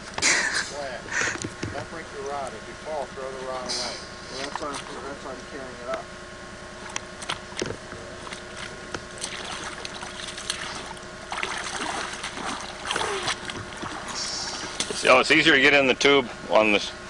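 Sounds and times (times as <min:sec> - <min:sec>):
water splashing around legs: 0:04.4 - 0:05.0, 0:08.2 - 0:15.1.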